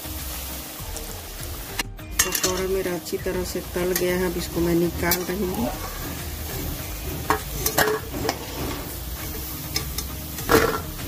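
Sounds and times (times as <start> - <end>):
food deep-frying in oil: 0.0 - 11.0
metal spatula scraping pan: 3.9 - 11.0.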